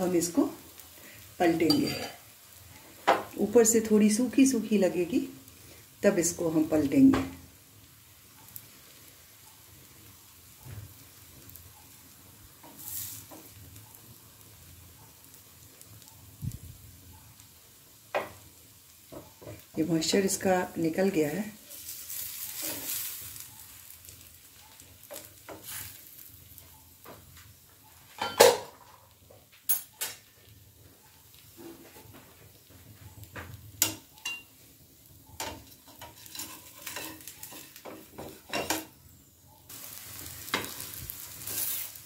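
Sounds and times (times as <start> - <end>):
flatbread sizzling in a pan: 0.0 - 42.0
spatula scraping a pan: 1.5 - 2.3, 12.6 - 13.5, 21.6 - 24.0, 25.0 - 26.3, 35.4 - 38.8, 40.4 - 42.0.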